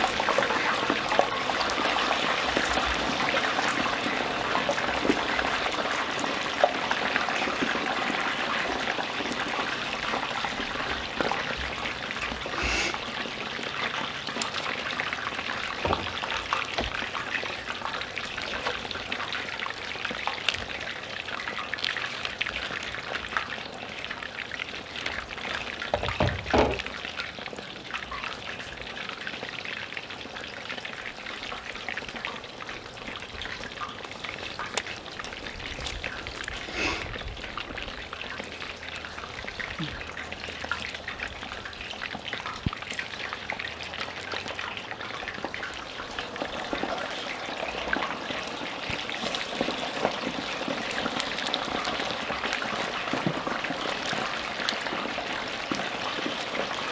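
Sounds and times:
oil crackling sizzle: 0.0 - 56.9
thump: 15.8 - 16.1, 25.9 - 26.8.

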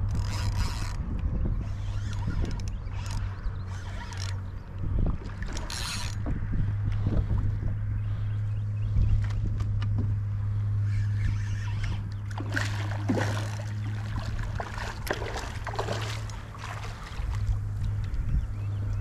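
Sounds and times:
steady low hum: 0.0 - 19.0
fish splashing in water: 11.8 - 18.1.

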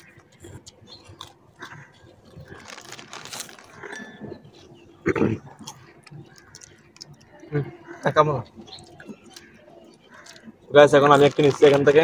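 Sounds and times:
foil chip packet crinkling: 1.2 - 4.3, 6.0 - 6.8, 10.1 - 12.0.

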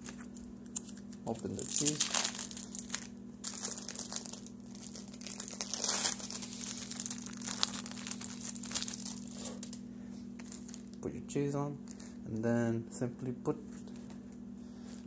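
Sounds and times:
plastic packaging crinkling: 0.0 - 11.0, 11.8 - 12.2
steady low hum: 0.0 - 15.0.

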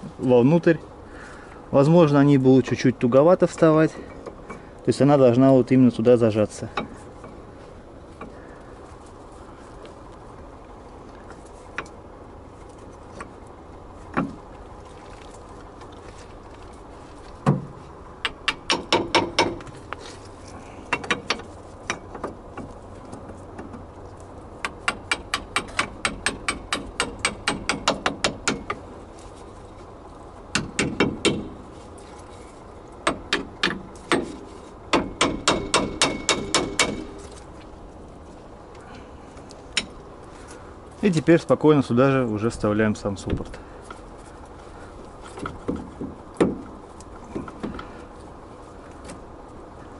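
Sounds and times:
metallic knocks: 17.4 - 19.8, 20.9 - 23.8, 33.0 - 37.2.

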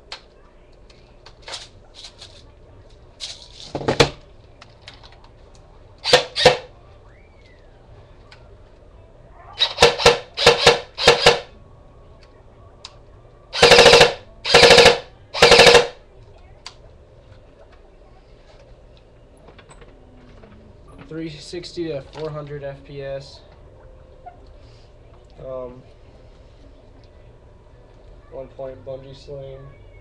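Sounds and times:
airsoft gun shots: 6.0 - 6.7, 9.6 - 11.5, 13.6 - 16.0.

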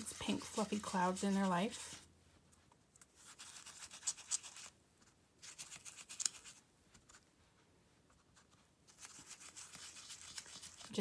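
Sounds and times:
foam sponge scratching: 0.0 - 2.1, 8.9 - 11.0.

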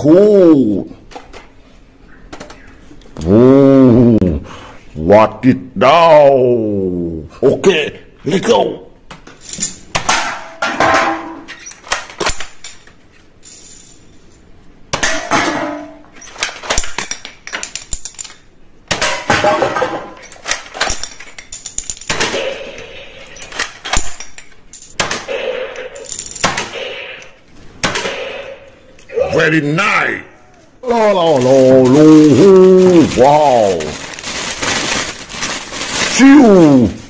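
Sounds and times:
plastic toy guns clattering: 9.3 - 13.0, 15.0 - 25.3.

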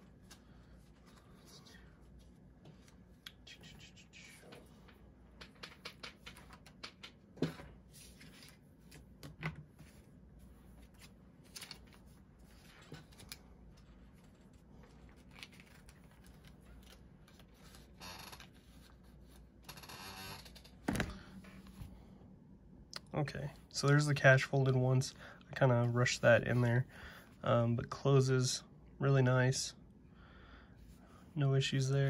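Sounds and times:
paper banknotes rustling: 9.8 - 19.4.

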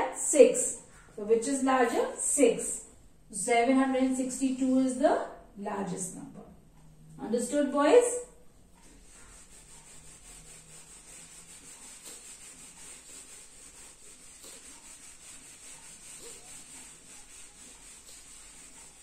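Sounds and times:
eraser wiping whiteboard: 8.0 - 19.0.

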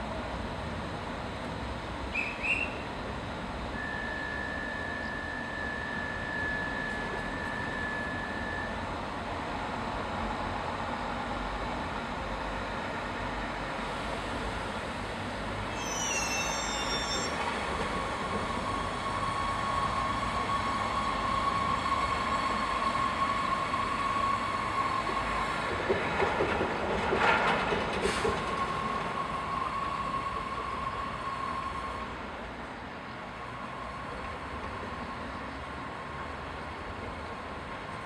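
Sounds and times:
train whine: 0.0 - 38.0
train wheels clattering: 25.0 - 29.1.

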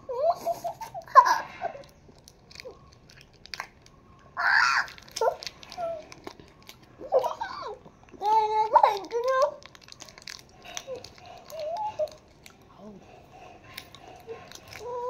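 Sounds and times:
children giggling: 0.0 - 2.0
children laughing: 0.0 - 2.0, 7.0 - 7.8
candy wrapper crinkling: 0.5 - 15.0.

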